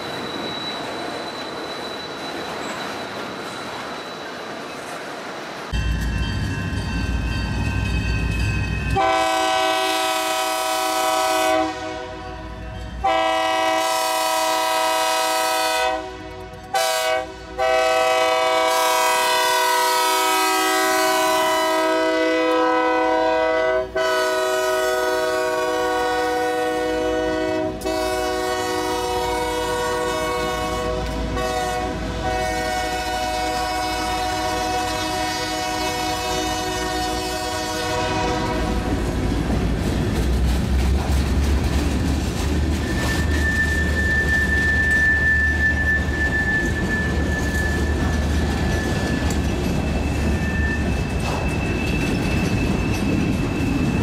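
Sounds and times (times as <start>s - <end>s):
rumble of rolling train: 0.0s - 54.0s
locomotive air horn blasts: 9.0s - 38.9s.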